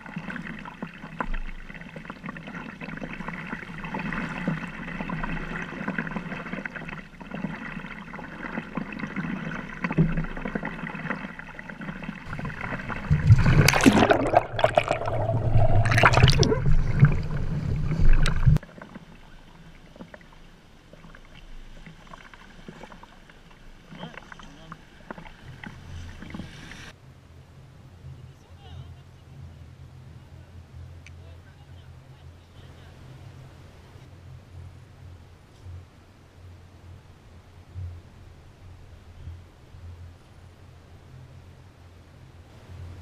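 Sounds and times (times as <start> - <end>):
water lapping around kayak: 0.0 - 27.0
water rushing and gurgling: 0.0 - 27.0.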